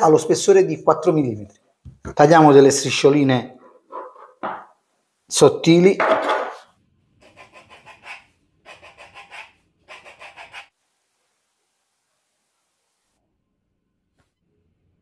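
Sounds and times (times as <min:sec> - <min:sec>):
knife sawing through pastry: 0:07.2 - 0:10.7.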